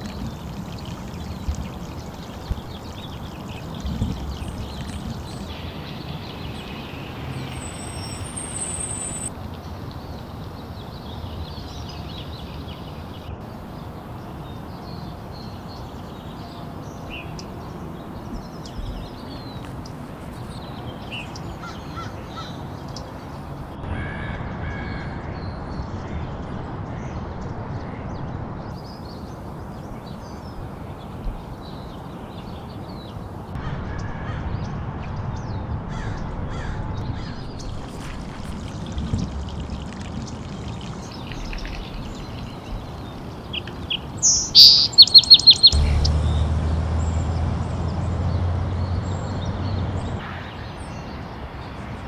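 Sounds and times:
birds calling: 0.0s - 9.3s, 17.1s - 23.7s, 35.9s - 47.4s.

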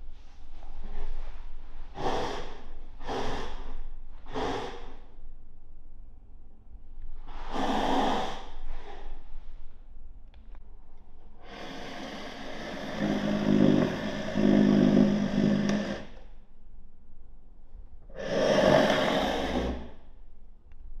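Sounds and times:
chair scraping along floor: 12.8s - 16.0s, 18.4s - 19.8s.

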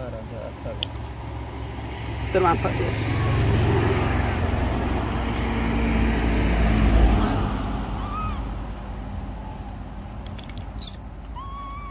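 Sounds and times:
passing vehicle engine rumble: 0.0s - 11.9s
short high arching call: 3.0s - 3.7s.

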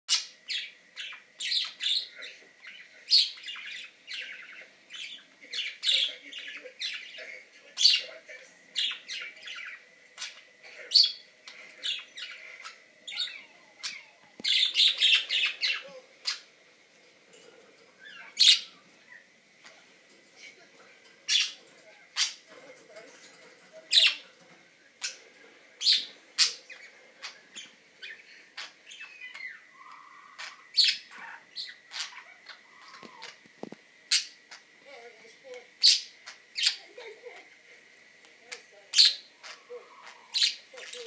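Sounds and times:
budgerigars chirping: 0.1s - 16.5s, 18.0s - 19.8s, 21.3s - 21.6s, 25.8s - 33.4s, 34.1s - 34.7s, 35.8s - 36.8s, 38.5s - 41.0s.

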